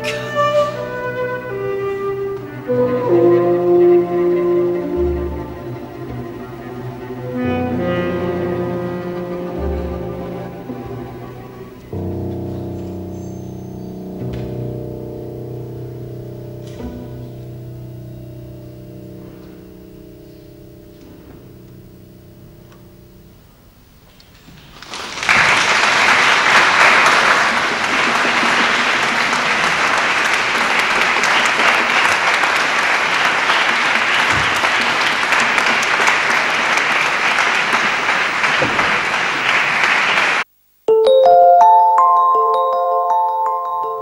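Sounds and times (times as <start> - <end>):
chamber ensemble held notes: 0.0 - 24.1, 40.9 - 44.0
audience applause: 24.7 - 40.5
chiming mallet percussion jingle: 40.9 - 44.0.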